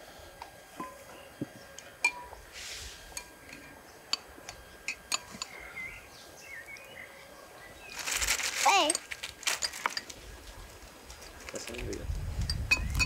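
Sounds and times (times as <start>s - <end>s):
spoons clinking on ceramic bowls: 3.1s - 5.6s.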